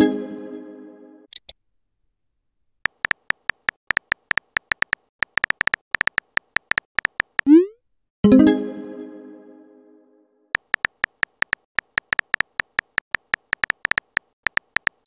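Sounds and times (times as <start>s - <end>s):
phone keyboard typing clicks: 2.9s - 7.6s, 10.6s - 15.0s
rising send blip: 7.5s - 7.8s.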